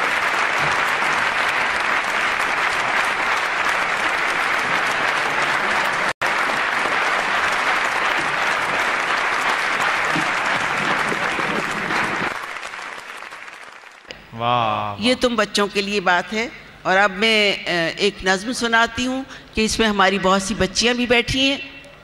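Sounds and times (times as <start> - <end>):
audience applauding: 0.0 - 14.1.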